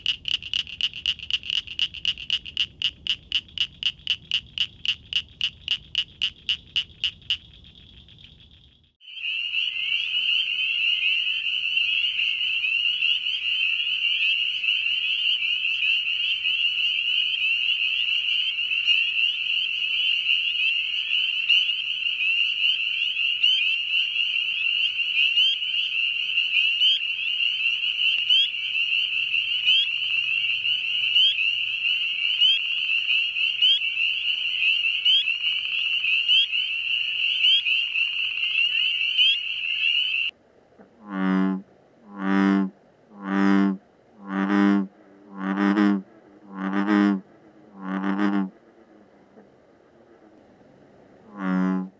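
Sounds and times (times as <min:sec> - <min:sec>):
frog chorus ringing: 0:00.0 - 0:40.3
frog peep calls: 0:00.0 - 0:40.4.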